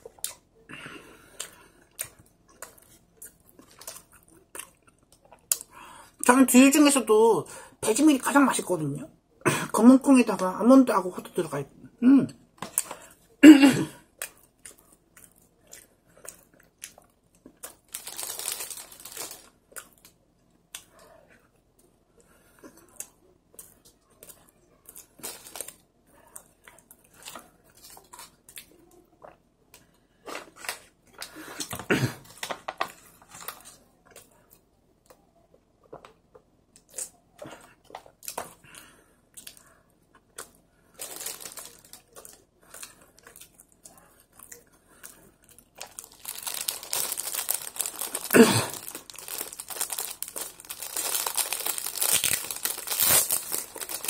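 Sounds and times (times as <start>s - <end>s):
person chewing bread: 0.0s - 5.8s, 14.0s - 54.0s
plastic bag crinkling and tearing: 17.6s - 20.1s, 25.0s - 25.8s, 41.0s - 43.0s, 45.4s - 54.0s.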